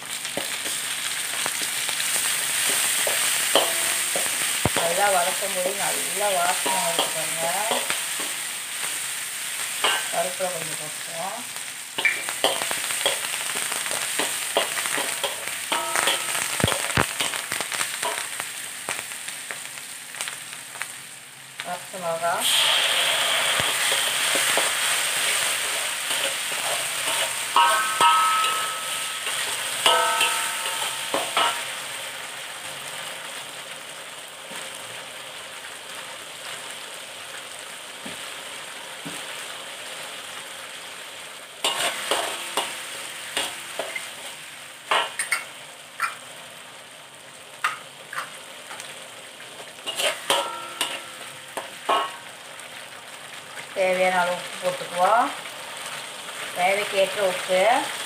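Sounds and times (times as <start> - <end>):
paste sizzling in hot oil: 0.0 - 58.0
metal spatula scraping wok: 2.1 - 5.6, 12.0 - 18.3, 22.4 - 31.9, 41.6 - 44.3, 49.6 - 52.3.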